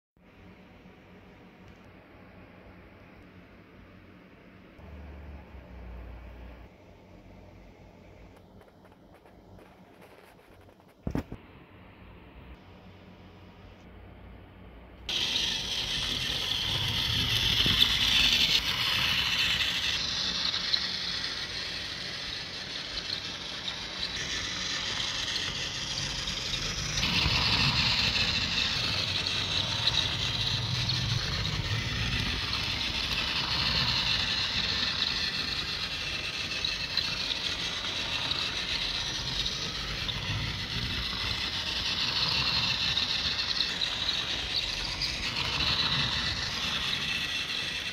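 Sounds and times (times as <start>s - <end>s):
toy train motor whirring: 15.1s - 47.9s.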